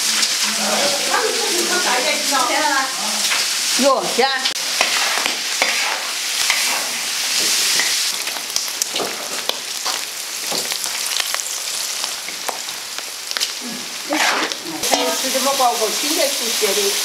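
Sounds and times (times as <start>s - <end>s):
meat sizzling in hot oil: 0.0s - 17.0s
metal spatula scraping a wok: 4.7s - 7.1s, 14.0s - 15.3s.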